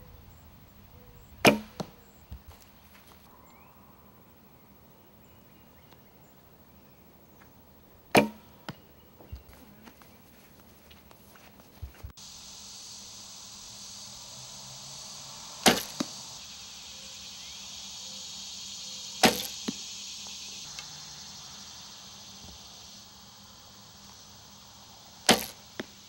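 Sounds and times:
steady high hiss: 0.0s - 26.0s
arrow thudding into foam target: 1.4s - 1.9s, 8.1s - 8.4s, 15.7s - 16.0s, 19.2s - 19.8s, 25.3s - 25.6s.

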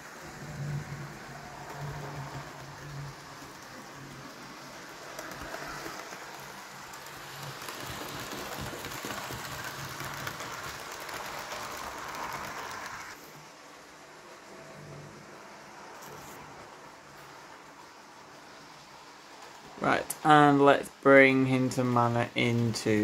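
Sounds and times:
model train wheels rattling on track: 1.2s - 13.2s.

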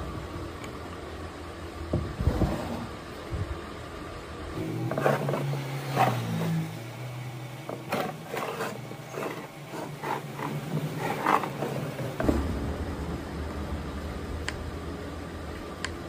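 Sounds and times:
small engine running: 4.6s - 12.6s
sharp knocks: 12.2s - 13.8s.

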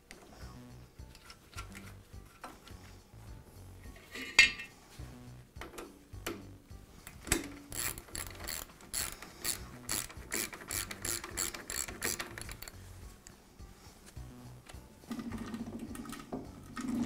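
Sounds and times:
spring ratchet clicks: 7.3s - 12.8s.

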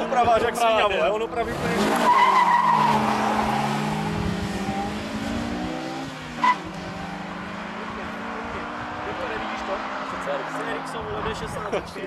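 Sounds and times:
car engines revving hard: 0.0s - 12.0s
tyre squeal: 1.8s - 4.0s.

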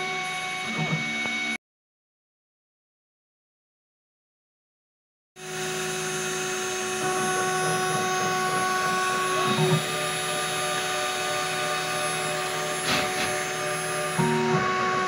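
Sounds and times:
milling machine spindle whine: 0.0s - 1.6s, 5.4s - 15.0s.

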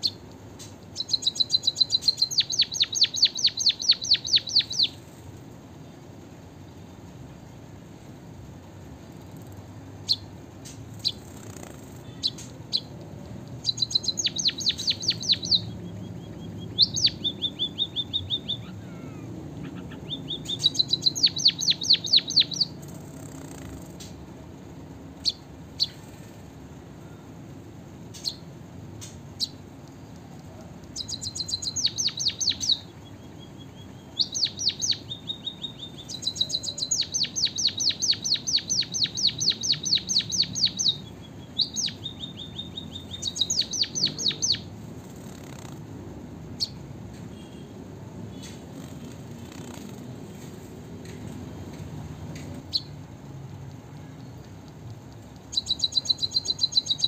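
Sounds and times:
bird chirps: 0.0s - 5.1s, 10.0s - 24.2s, 25.2s - 26.2s, 28.1s - 45.8s, 46.5s - 50.0s, 52.4s - 53.0s, 55.2s - 57.0s
bird trilling song: 0.0s - 5.1s, 10.0s - 24.2s, 25.2s - 26.3s, 28.1s - 45.8s, 46.5s - 47.7s, 48.3s - 50.0s, 52.4s - 53.0s, 55.2s - 57.0s.

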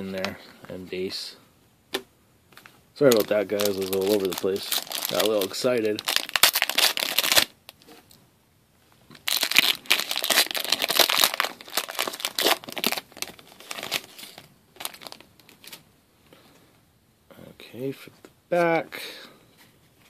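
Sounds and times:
foil wrapper crinkling: 3.0s - 7.8s, 9.2s - 15.8s.

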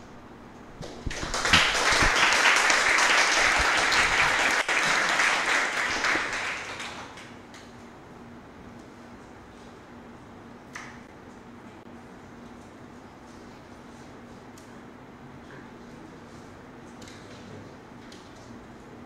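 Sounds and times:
people applauding: 0.8s - 7.4s.

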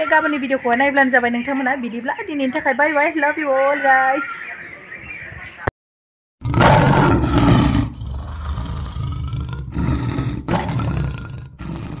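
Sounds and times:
lion roaring: 6.4s - 12.0s.

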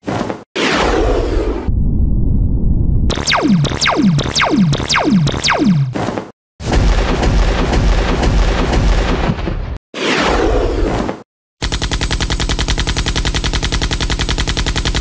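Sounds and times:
explosion rumble: 1.6s - 3.1s
gunfire-like cracks: 6.6s - 9.8s.

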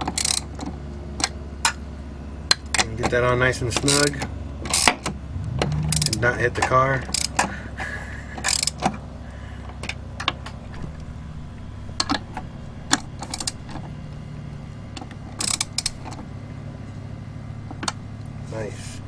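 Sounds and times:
ratchet clicking: 0.0s - 0.5s, 5.8s - 6.2s, 7.1s - 7.5s, 8.4s - 8.9s, 13.2s - 13.7s, 15.4s - 16.2s
steady low hum: 0.4s - 19.0s.

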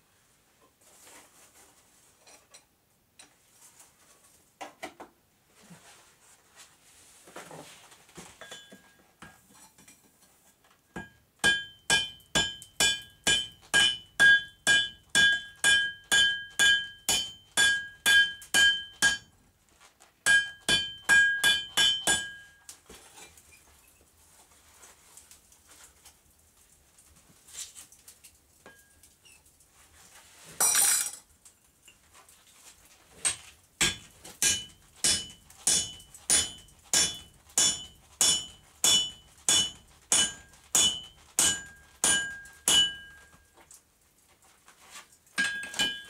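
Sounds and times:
hammer striking metal on anvil: 11.0s - 19.3s, 20.2s - 22.6s, 33.3s - 43.3s, 45.4s - 46.0s.

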